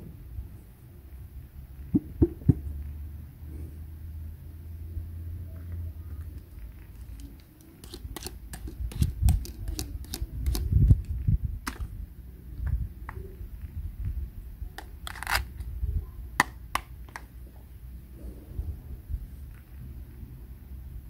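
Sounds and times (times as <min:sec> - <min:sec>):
plastic toy pieces clicking: 0:07.0 - 0:11.9, 0:14.8 - 0:15.6.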